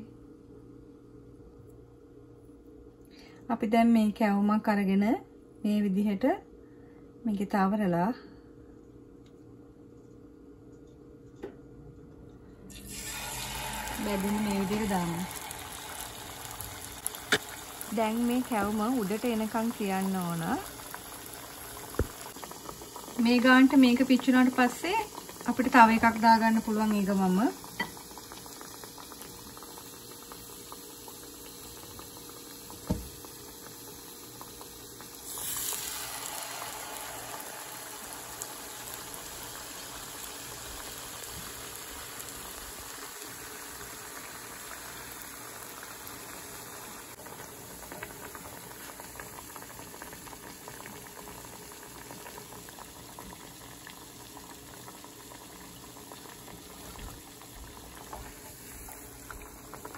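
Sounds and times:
deep-frying bubbling sizzle: 0:12.7 - 0:59.9.

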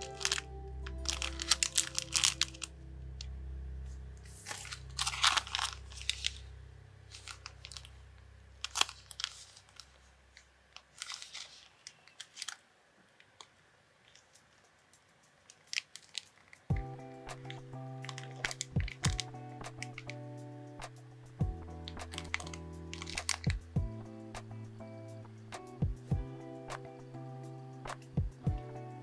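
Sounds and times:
plastic bags crinkling: 0:00.0 - 0:02.7, 0:04.4 - 0:06.5, 0:07.1 - 0:08.0, 0:08.6 - 0:14.4, 0:15.5 - 0:16.6, 0:17.3 - 0:20.2, 0:21.8 - 0:23.6
soft background music: 0:00.0 - 0:09.4, 0:14.4 - 0:29.0.

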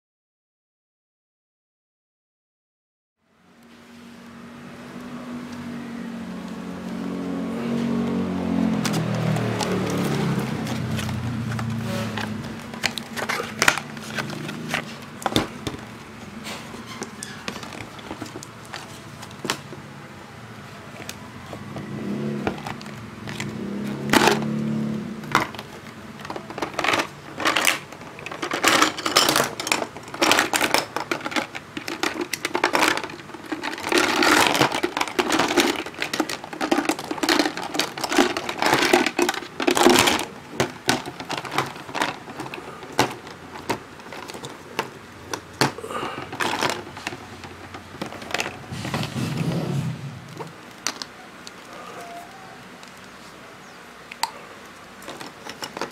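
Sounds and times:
plastic tools clattering: 0:08.6 - 0:19.9, 0:20.8 - 0:53.1, 0:54.1 - 0:55.9
packaging rustling: 0:08.7 - 0:19.9, 0:20.6 - 0:53.2.

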